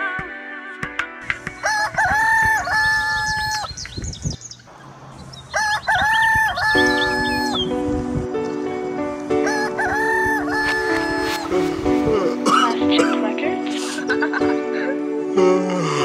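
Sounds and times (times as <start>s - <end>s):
small birds chirping: 1.4s - 9.4s
rooster crowing: 1.6s - 3.7s, 5.4s - 7.7s, 9.4s - 11.5s
sustained music chord: 6.8s - 16.0s.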